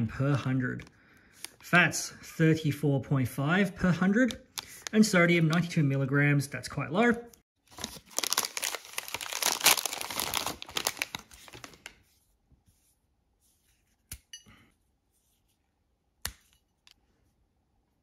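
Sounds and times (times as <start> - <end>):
plastic wrapper crinkling: 7.6 - 12.0.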